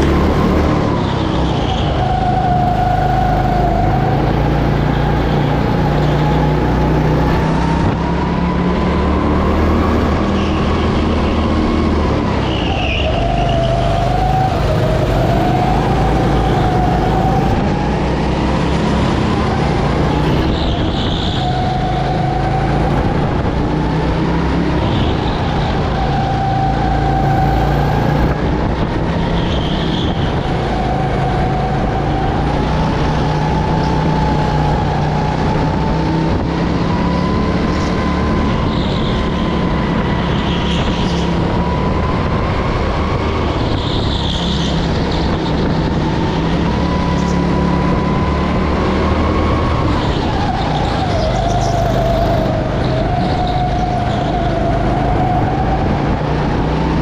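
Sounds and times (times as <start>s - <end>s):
go-kart engine running hard: 0.0s - 57.0s.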